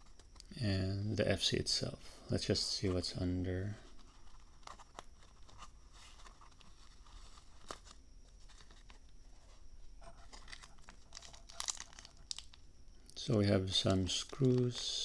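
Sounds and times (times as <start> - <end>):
plastic zip bag crinkling: 10.0 - 12.7, 13.7 - 15.0.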